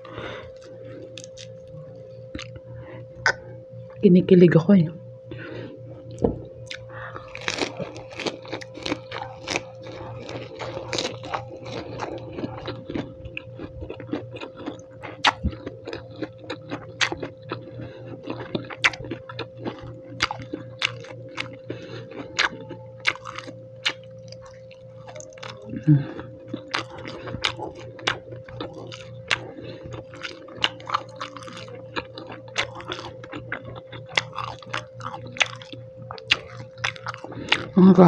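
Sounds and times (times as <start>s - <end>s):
lettuce crunching: 0.0s - 2.6s, 6.0s - 37.8s
low hum: 0.0s - 38.0s
wet mouth clicks: 3.2s - 3.4s.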